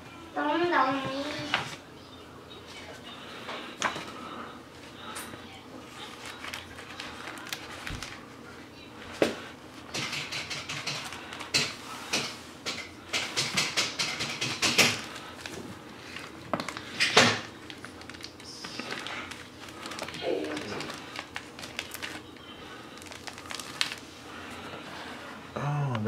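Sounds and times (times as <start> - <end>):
crinkly plastic rustling: 4.8 - 12.0, 14.8 - 25.3.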